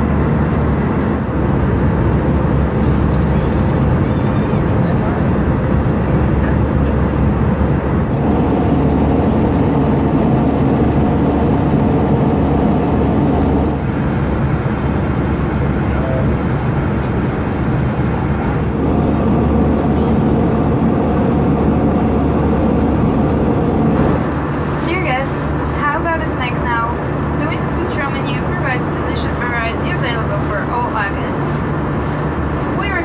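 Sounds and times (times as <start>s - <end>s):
airflow rushing along fuselage: 0.0s - 33.0s
airplane cabin drone: 0.0s - 33.0s.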